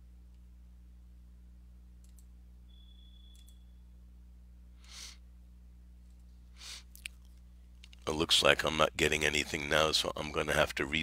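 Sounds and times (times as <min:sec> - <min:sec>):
low electrical hum: 0:00.0 - 0:11.0
computer mouse clicks: 0:02.0 - 0:02.3, 0:03.3 - 0:03.6
short breath: 0:04.8 - 0:05.2, 0:06.6 - 0:06.9.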